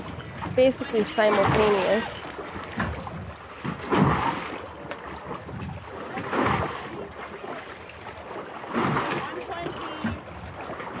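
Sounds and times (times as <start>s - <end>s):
waves lapping: 0.0s - 11.0s
wind on microphone: 5.2s - 7.1s.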